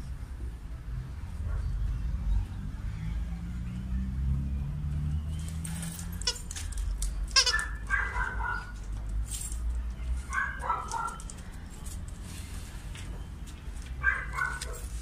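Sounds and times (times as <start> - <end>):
squeaky toy squeaking: 6.1 - 6.6, 7.3 - 8.1.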